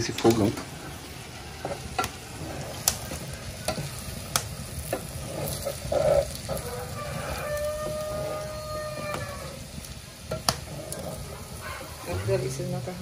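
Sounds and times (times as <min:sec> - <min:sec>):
pasta sizzling: 0:00.0 - 0:13.0
spoon tapping pot sides: 0:03.6 - 0:05.8.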